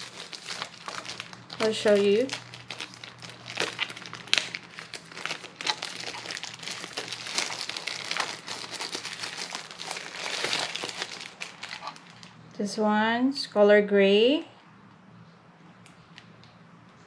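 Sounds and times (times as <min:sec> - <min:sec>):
plastic bag crinkling: 0:00.0 - 0:12.4.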